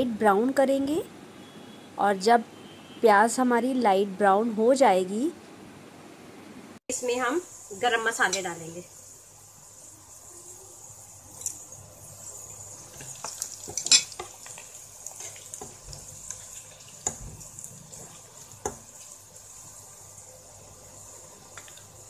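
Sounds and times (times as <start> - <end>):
onions sizzling in oil: 6.9 - 22.0.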